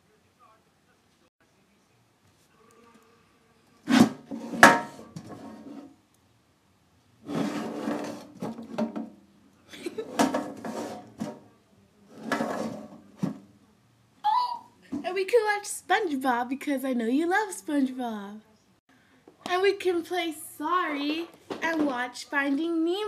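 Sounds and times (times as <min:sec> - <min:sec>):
rubbing and scraping on tin: 0:07.3 - 0:08.6, 0:10.0 - 0:11.4, 0:12.1 - 0:13.0.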